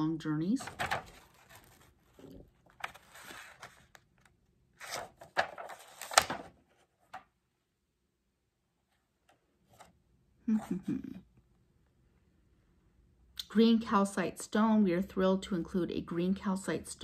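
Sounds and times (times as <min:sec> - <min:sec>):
handling rustling: 0:00.6 - 0:07.2.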